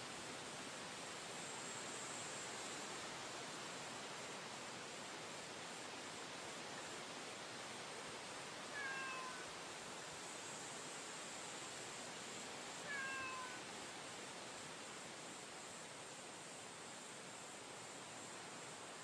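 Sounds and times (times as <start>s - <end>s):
steady hiss: 0.0s - 19.0s
cat meowing: 8.7s - 9.5s, 12.9s - 13.6s.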